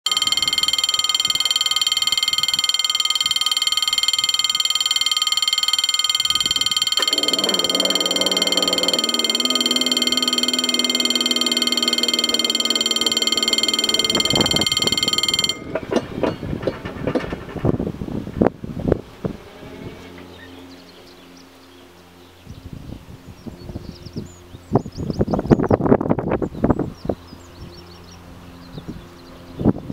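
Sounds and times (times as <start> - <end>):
level crossing bell ringing: 0.0 - 16.1
barrier mechanism electric hum: 0.1 - 29.9.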